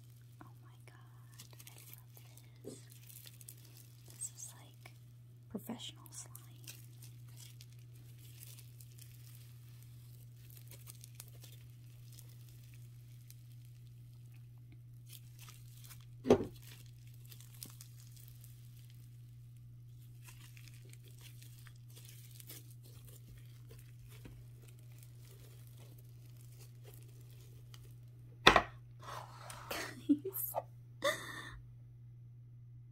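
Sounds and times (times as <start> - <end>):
slime tearing and crackling: 0.0 - 5.0, 6.0 - 28.2
steady low hum: 0.0 - 32.9
loud short thump: 28.4 - 28.7.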